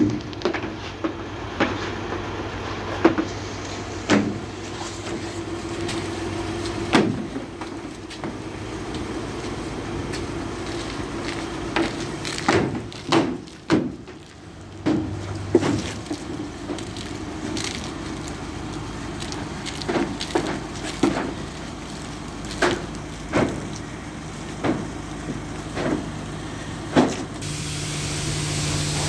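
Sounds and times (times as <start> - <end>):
steady motor hum: 0.0 - 29.0
knocks and clunks: 24.6 - 26.1.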